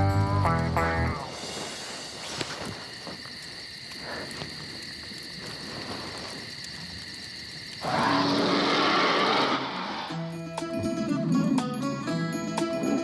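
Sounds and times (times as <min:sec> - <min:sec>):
crickets chirring: 0:00.0 - 0:13.0
bear roar from small speaker: 0:07.8 - 0:10.2.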